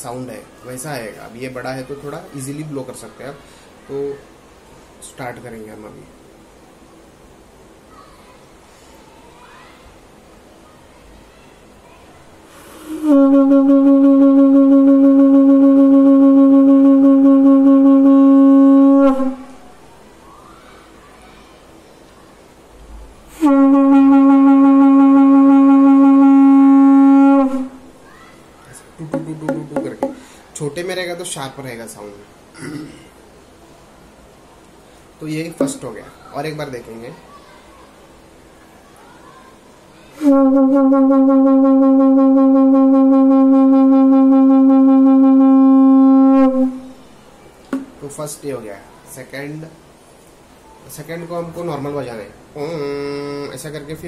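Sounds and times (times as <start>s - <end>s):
conch shell blast: 12.6s - 19.5s, 23.3s - 27.8s, 40.2s - 47.0s.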